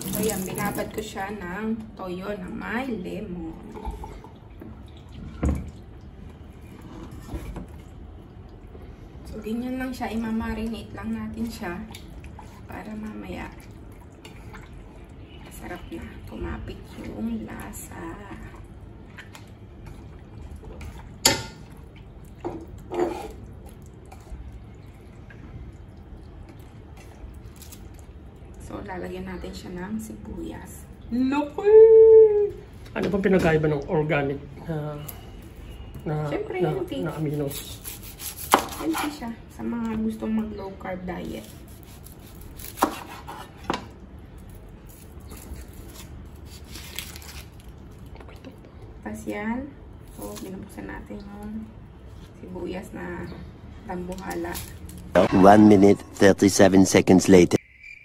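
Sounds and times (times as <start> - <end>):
liquid dripping: 0.0 - 1.0, 3.5 - 6.7, 18.2 - 29.5
onion skin peeled by hand: 37.0 - 39.2, 41.3 - 43.8, 44.4 - 48.5.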